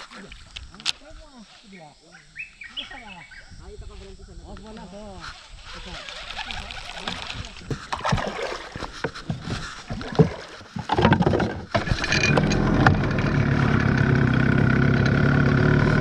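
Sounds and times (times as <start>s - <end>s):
outboard motor running: 5.9s - 16.0s
pull-start knocks and clicks: 11.1s - 16.0s.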